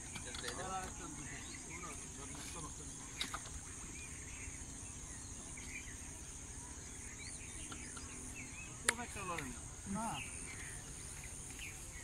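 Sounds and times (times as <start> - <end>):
bird chirps: 0.0 - 12.0
insect chorus: 0.0 - 12.0
sharp click: 8.8 - 9.5.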